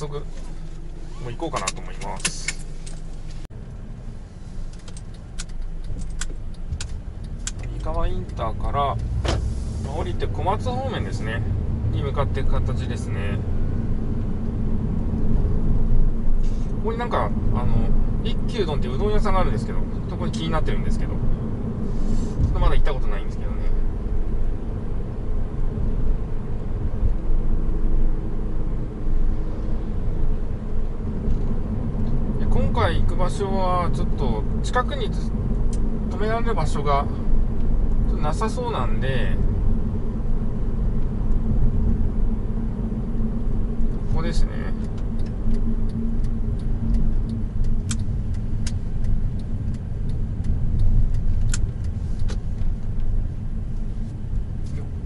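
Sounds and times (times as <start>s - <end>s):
road and engine rumble: 0.0s - 55.0s
sharp clicks: 44.8s - 53.1s.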